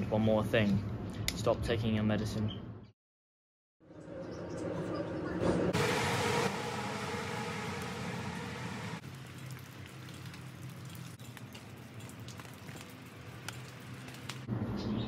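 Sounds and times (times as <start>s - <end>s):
rain falling: 5.8s - 14.5s
water drops ticking: 9.0s - 14.5s.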